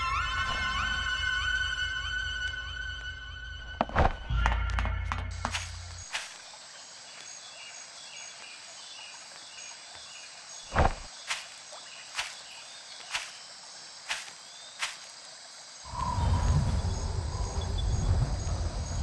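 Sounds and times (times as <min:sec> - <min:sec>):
insects chirping: 0:00.0 - 0:19.0
slow footsteps: 0:03.7 - 0:06.5, 0:10.7 - 0:15.2.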